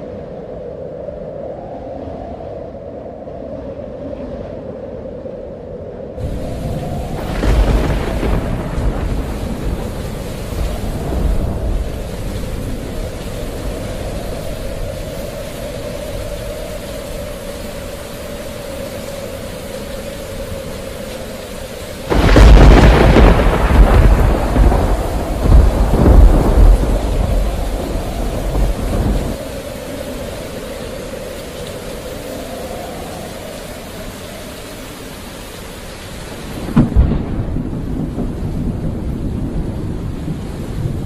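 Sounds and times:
steady rain: 0.0 - 41.0
thunder cracking and rumbling: 6.2 - 16.2, 22.1 - 30.4, 36.4 - 41.0.

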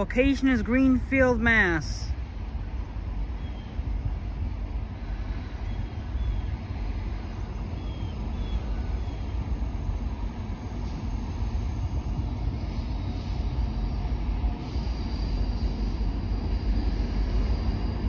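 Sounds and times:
diesel freight train rumble: 0.0 - 18.0
bird chirps: 3.3 - 3.8, 5.4 - 9.7.

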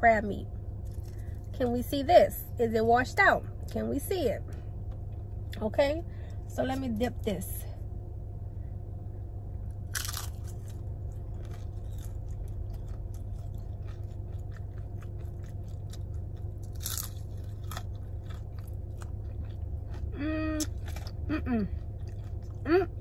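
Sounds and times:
crunching fried food: 0.7 - 1.7, 9.6 - 23.0
wet chewing: 9.9 - 23.0.

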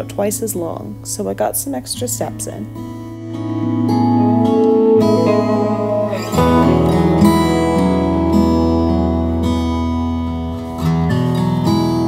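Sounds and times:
strummed acoustic guitar: 2.8 - 12.0.

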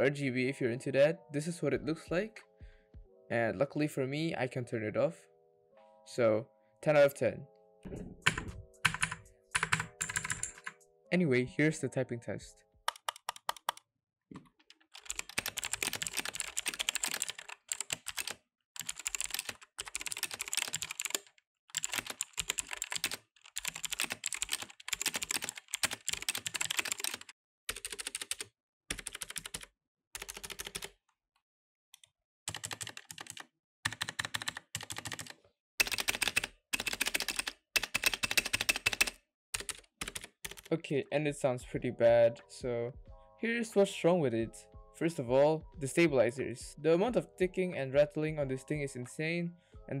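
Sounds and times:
mechanical keyboard typing: 8.2 - 10.8, 12.9 - 13.8, 14.4 - 31.0, 32.5 - 40.7.

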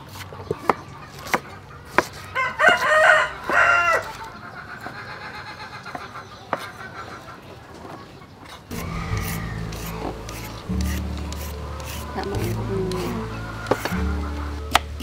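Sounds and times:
rooster crowing: 2.4 - 4.2, 8.7 - 10.5, 12.9 - 14.7.

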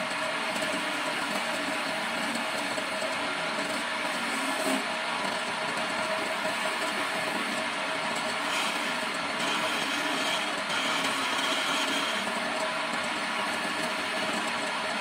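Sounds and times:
chisel shaving spinning wood: 0.0 - 15.0
wood lathe humming: 6.9 - 12.5.

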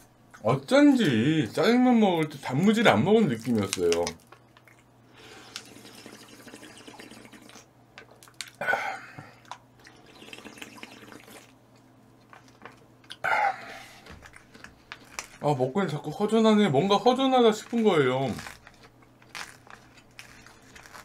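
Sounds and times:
wet chewing: 3.4 - 5.9, 9.4 - 15.6, 17.2 - 21.0
wet slurping: 5.2 - 7.7, 9.8 - 11.6.

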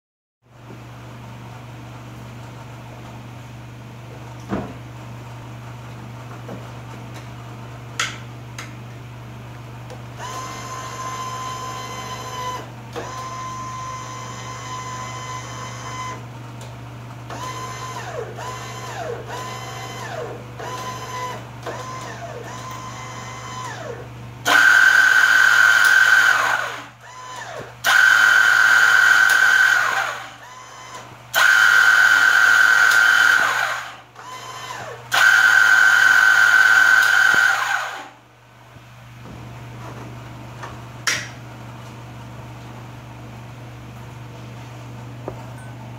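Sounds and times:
small motor whining: 10.2 - 16.2.

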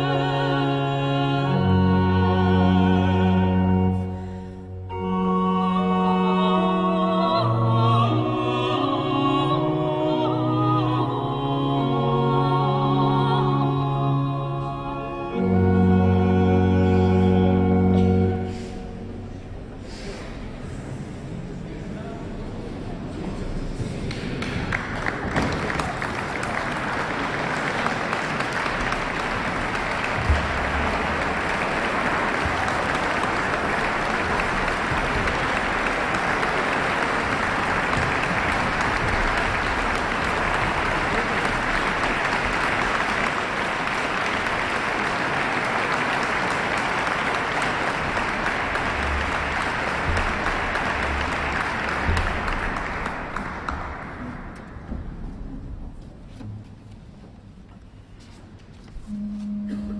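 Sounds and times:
audience applauding: 24.0 - 54.9.

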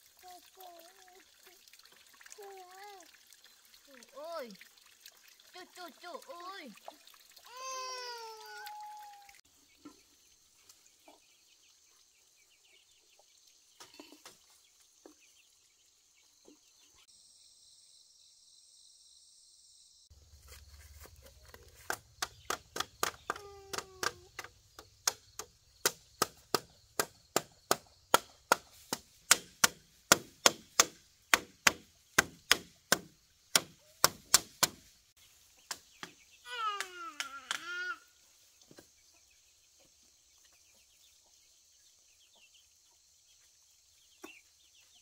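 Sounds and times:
blade chopping bamboo: 21.0 - 34.9.

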